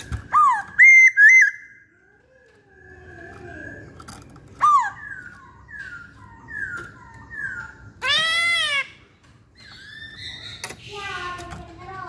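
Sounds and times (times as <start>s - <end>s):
bird whistled calls: 0.0s - 1.9s, 4.6s - 8.9s.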